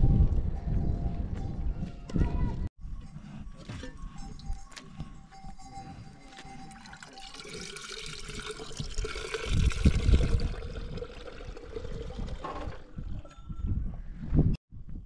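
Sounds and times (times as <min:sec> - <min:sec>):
liquid pouring and splashing: 0:06.7 - 0:13.4.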